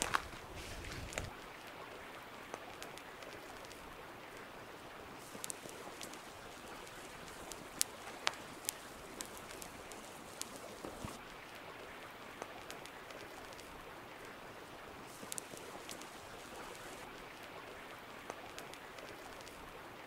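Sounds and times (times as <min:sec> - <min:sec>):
torch burning with crackles: 0:00.0 - 0:01.6, 0:05.1 - 0:11.5, 0:15.0 - 0:17.4, 0:18.3 - 0:19.8.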